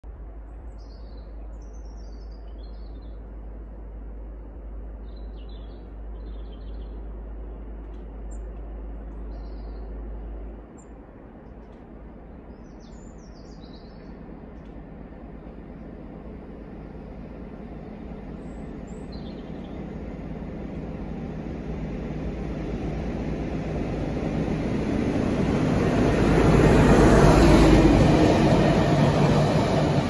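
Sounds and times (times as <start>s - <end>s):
low rumble: 0.0s - 30.0s
songbirds chirping: 0.3s - 21.6s.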